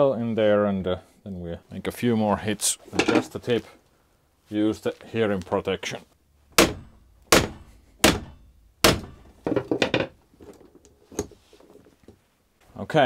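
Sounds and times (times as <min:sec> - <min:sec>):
hammer striking crimping tool: 0:06.6 - 0:09.4.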